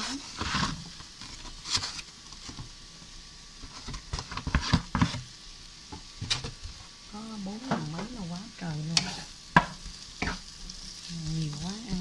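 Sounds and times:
spatula scraping frying pan: 0:00.0 - 0:02.5, 0:03.6 - 0:05.3, 0:08.8 - 0:12.0.

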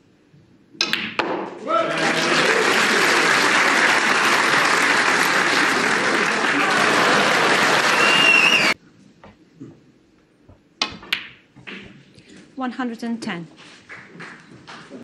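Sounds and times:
crowd applauding: 0:01.6 - 0:08.8, 0:13.8 - 0:15.0.

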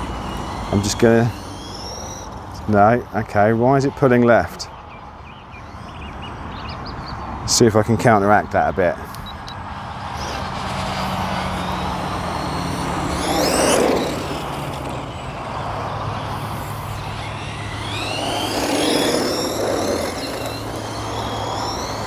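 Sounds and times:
outdoor noise: 0:00.0 - 0:22.0
rc car motors whining: 0:00.0 - 0:22.0.

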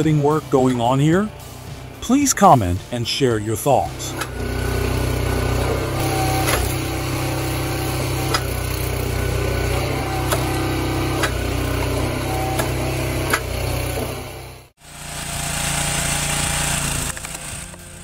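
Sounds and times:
small gasoline engine running: 0:03.8 - 0:18.0.

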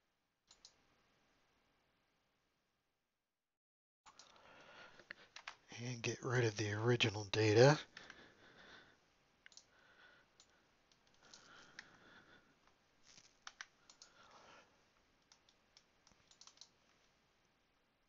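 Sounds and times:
mouse and keyboard clicks: 0:00.5 - 0:00.8, 0:09.5 - 0:09.7, 0:13.1 - 0:14.2, 0:15.2 - 0:16.8.

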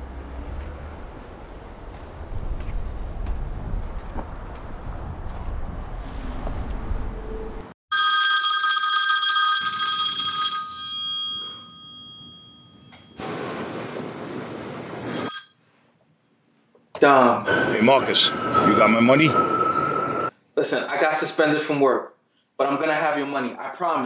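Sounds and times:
telephone bell ringing: 0:07.9 - 0:13.2, 0:15.0 - 0:15.6.

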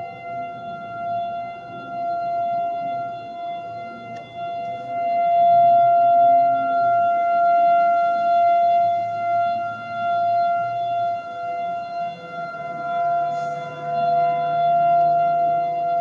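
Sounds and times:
warning siren steady tone: 0:00.0 - 0:16.0.

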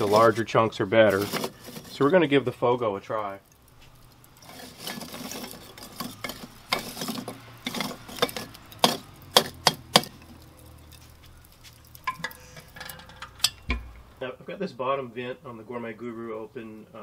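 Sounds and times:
charcoal crackling: 0:00.0 - 0:17.0.

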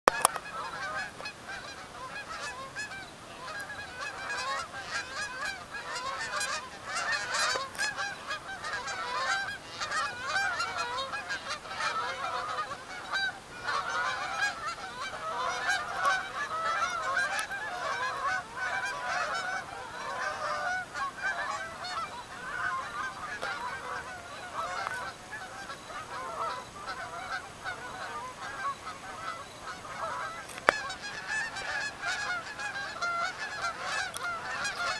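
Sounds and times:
flock of geese honking: 0:00.1 - 0:34.9.

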